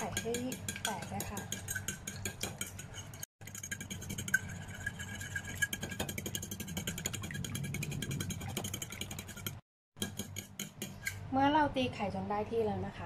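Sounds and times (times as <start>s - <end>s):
fork beating egg on plate: 0.0s - 11.2s.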